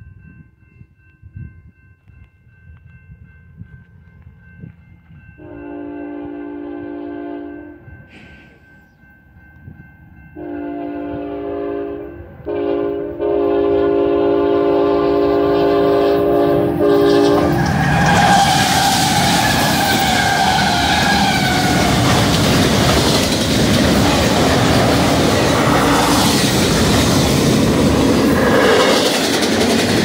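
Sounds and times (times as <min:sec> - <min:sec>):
locomotive horn blasts: 0:05.4 - 0:07.9, 0:10.4 - 0:22.0
wheels on rail: 0:07.5 - 0:30.0
locomotive engine rumble: 0:12.4 - 0:30.0
freight cars clattering: 0:17.4 - 0:30.0.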